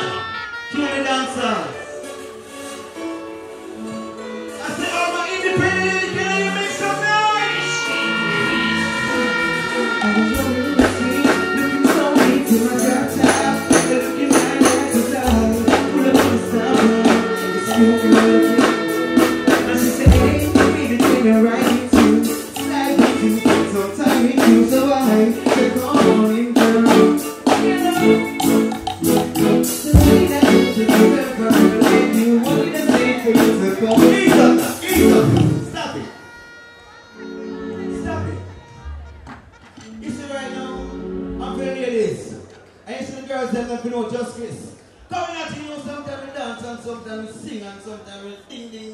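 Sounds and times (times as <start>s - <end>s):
live stage music: 0.0s - 48.9s
person singing: 7.4s - 28.7s, 29.7s - 38.7s
percussion beat: 9.9s - 35.8s.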